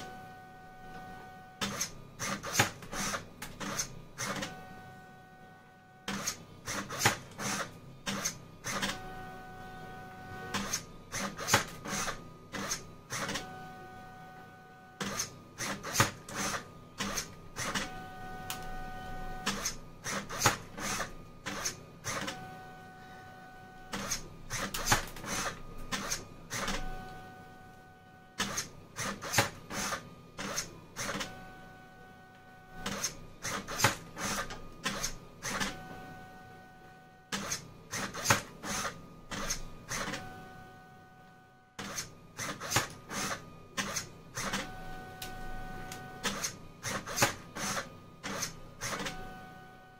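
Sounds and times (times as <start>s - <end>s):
stepper motor whine: 0.0s - 49.9s
sharp clicks and servo buzz: 1.6s - 4.6s, 6.1s - 9.0s, 10.5s - 13.5s, 15.0s - 17.9s, 19.4s - 22.4s, 23.9s - 27.2s, 28.4s - 31.3s, 32.8s - 35.8s, 37.3s - 40.3s, 41.8s - 49.2s.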